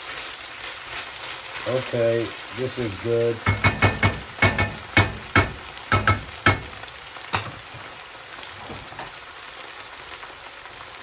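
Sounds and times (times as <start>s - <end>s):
onions sizzling in oil: 0.0s - 11.0s
wooden spoon knocking on pan: 3.4s - 7.8s.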